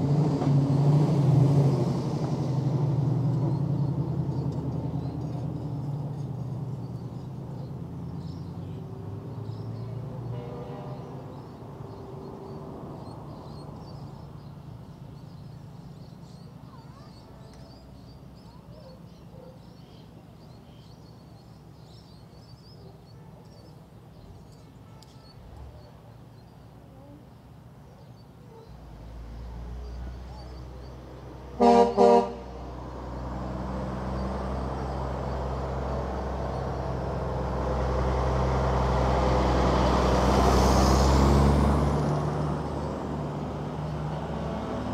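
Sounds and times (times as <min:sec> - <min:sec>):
diesel engine rumble: 0:00.0 - 0:44.9
truck horn blasts: 0:10.2 - 0:11.2, 0:31.6 - 0:32.6.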